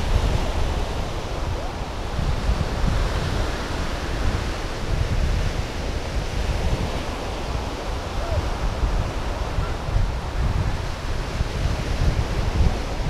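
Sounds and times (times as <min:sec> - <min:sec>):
ocean surf: 0:00.0 - 0:13.0
wind buffeting microphone: 0:00.0 - 0:13.0.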